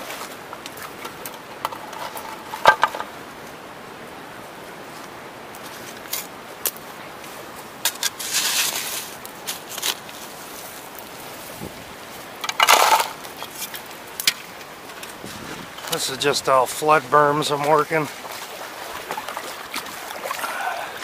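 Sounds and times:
shovel scraping gravel: 7.8s - 10.3s, 12.4s - 13.8s.

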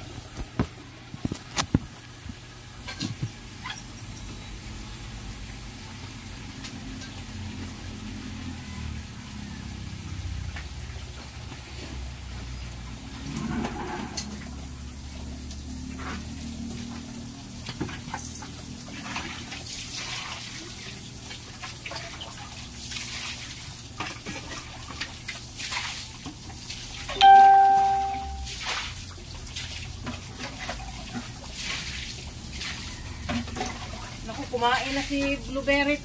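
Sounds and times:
water sloshing and splashing: 15.9s - 27.6s, 28.5s - 35.4s
ringing ding: 27.2s - 28.5s.

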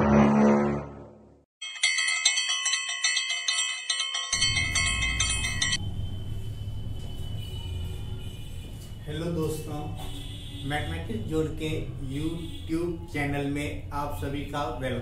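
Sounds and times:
bell-like metallic ringing: 1.6s - 7.8s.

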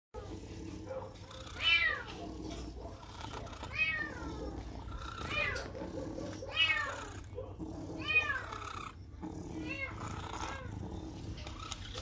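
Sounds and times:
cat meowing: 1.5s - 2.2s, 3.7s - 5.8s, 6.4s - 7.2s, 8.0s - 8.9s, 9.6s - 10.7s.

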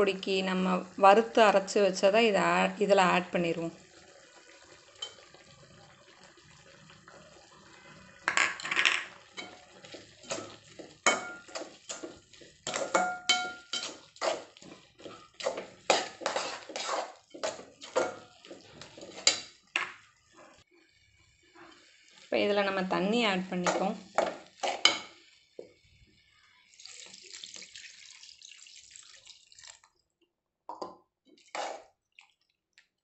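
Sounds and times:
ladle scraping and knocking pan: 8.2s - 20.0s, 23.6s - 25.2s, 31.4s - 31.8s.

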